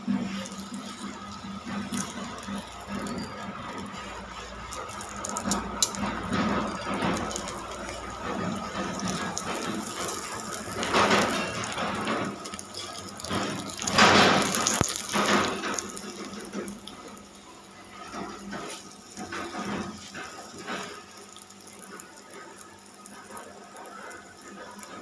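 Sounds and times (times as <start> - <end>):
oil sizzling on a griddle: 0.0 - 25.0.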